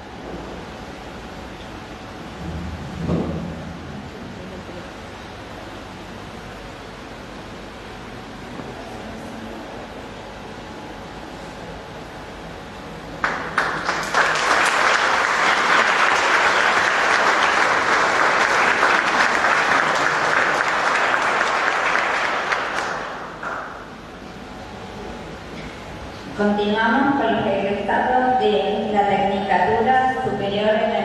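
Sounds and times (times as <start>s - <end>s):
audience applauding: 13.2s - 23.9s.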